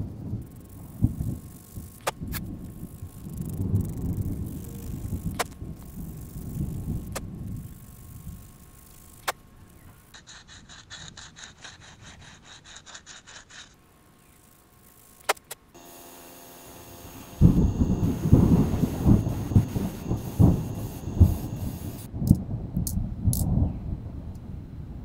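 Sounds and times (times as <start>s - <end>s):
sandpaper rubbing on wood: 7.8s - 14.4s, 15.1s - 22.1s
clicks: 15.2s - 15.6s.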